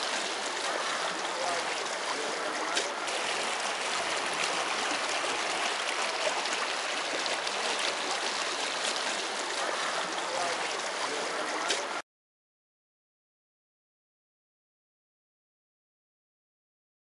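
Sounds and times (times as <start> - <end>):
water splashing against boat hull: 0.0 - 12.0.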